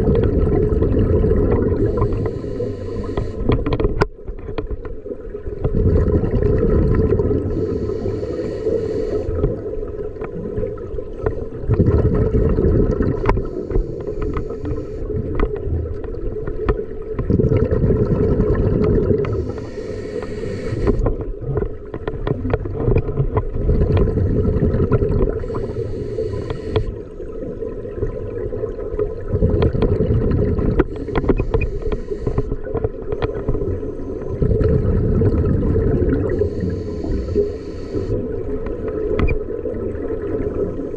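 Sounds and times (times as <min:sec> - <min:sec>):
exhaust bubbles bubbling: 0:00.0 - 0:03.7, 0:05.5 - 0:21.6, 0:22.4 - 0:40.9
low water rumble: 0:00.0 - 0:40.9
scuba regulator hissing: 0:01.8 - 0:03.5, 0:07.5 - 0:09.3, 0:13.4 - 0:15.0, 0:19.3 - 0:21.0, 0:25.4 - 0:26.9, 0:30.9 - 0:32.5, 0:36.3 - 0:38.2.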